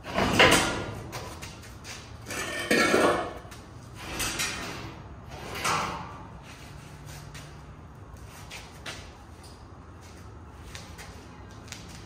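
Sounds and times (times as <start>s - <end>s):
heavy steel clanking and scraping: 0.0s - 6.8s.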